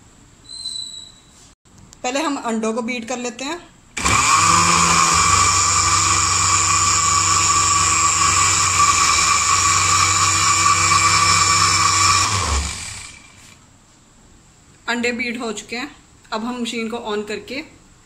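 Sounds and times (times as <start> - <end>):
electric blender running: 4.0 - 13.6.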